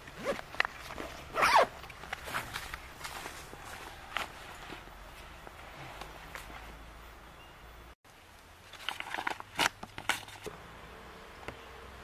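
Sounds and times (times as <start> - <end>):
faint outdoor background: 0.0 - 12.0
paper map crinkling: 8.6 - 10.5.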